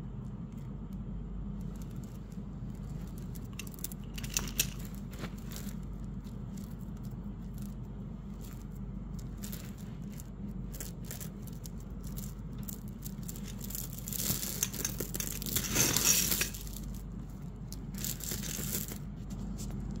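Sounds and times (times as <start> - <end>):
glass beads clicking and rattling: 3.4 - 5.8, 8.4 - 19.0.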